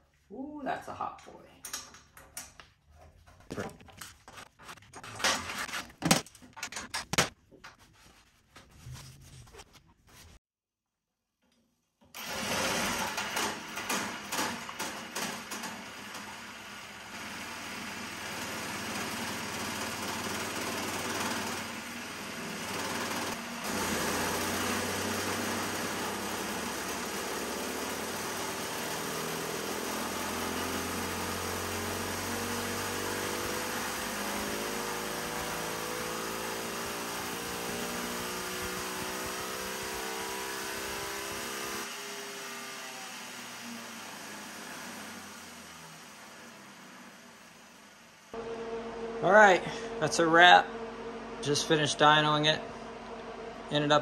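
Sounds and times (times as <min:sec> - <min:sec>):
clicks and knocks of hand work: 0:01.6 - 0:07.9
kart engine running: 0:12.2 - 0:47.4.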